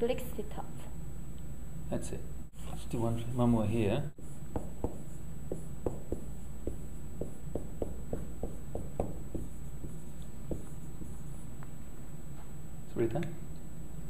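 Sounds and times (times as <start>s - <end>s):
writing taps and clicks: 4.5s - 11.8s.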